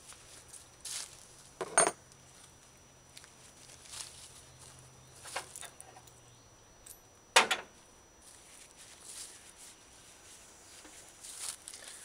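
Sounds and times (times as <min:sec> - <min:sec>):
faint scuffs and rustles: 0:00.0 - 0:01.5, 0:02.2 - 0:05.6, 0:08.2 - 0:12.0.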